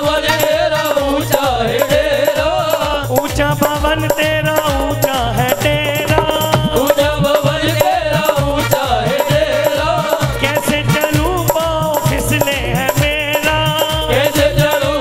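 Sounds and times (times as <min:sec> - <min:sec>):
fast steady drum beat: 0:01.1 - 0:15.0
shaker keeping time: 0:05.3 - 0:07.3.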